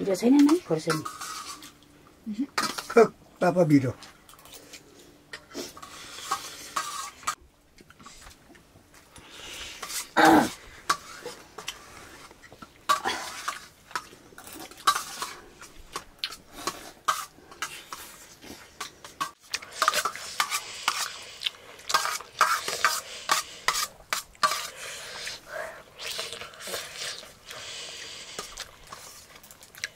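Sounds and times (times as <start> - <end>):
spoon scraping metal plate: 0.4 - 1.7, 21.9 - 25.4.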